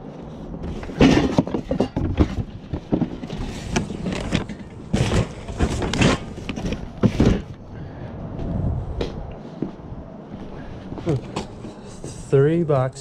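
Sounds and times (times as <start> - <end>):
items knocking and clattering: 0.6 - 7.6.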